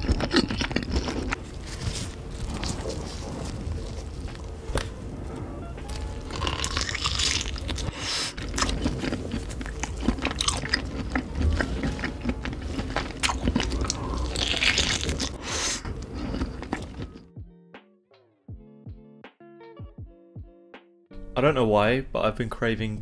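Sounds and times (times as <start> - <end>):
biting and chewing food: 0.0 - 5.2, 5.9 - 17.3.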